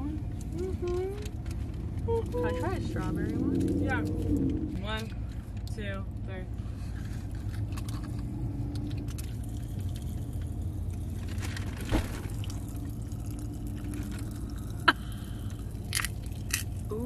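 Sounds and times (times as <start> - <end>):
car cabin hum: 0.0 - 17.0
candy crackling and popping: 7.4 - 17.0.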